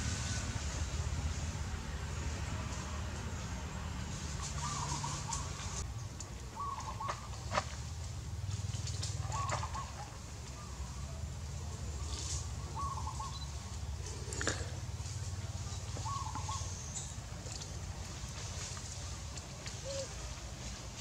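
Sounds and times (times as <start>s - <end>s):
steady low rumble: 0.0s - 6.6s.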